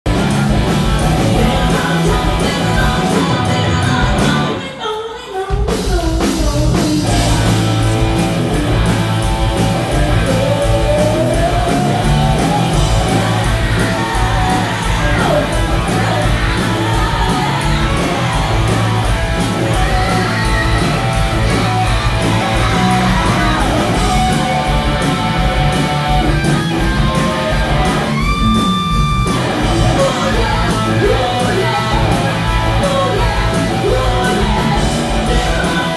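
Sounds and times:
live rock band playing: 0:00.0 - 0:35.9
woman singing: 0:01.2 - 0:07.7, 0:10.2 - 0:24.2, 0:29.9 - 0:35.9.

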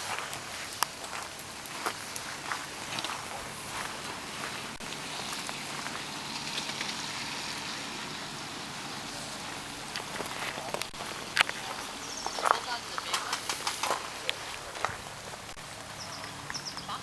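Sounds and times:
rain falling: 0:00.0 - 0:17.0.

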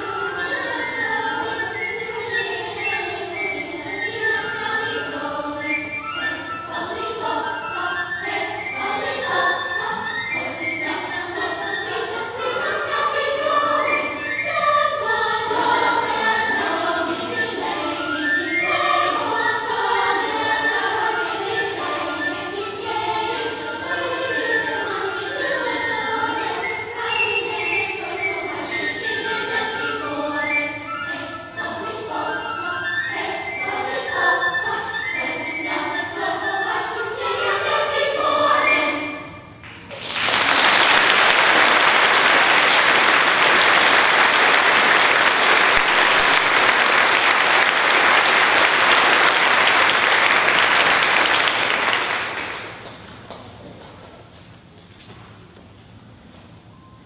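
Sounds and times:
children's choir singing: 0:00.0 - 0:54.3
applause: 0:39.6 - 0:53.3.

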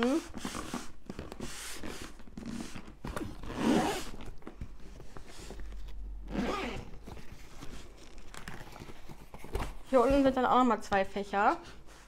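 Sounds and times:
zipper being pulled open: 0:00.0 - 0:04.6, 0:05.2 - 0:08.9.

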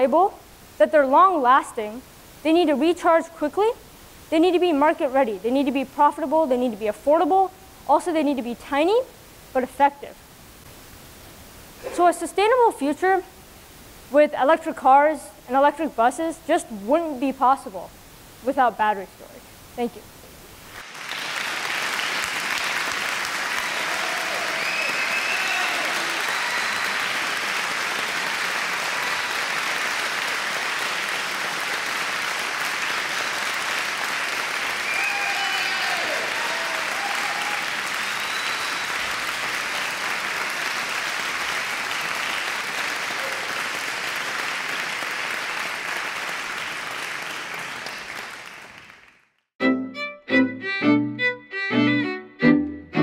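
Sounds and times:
audience applauding: 0:20.8 - 0:49.5
string music: 0:49.6 - 0:53.0.

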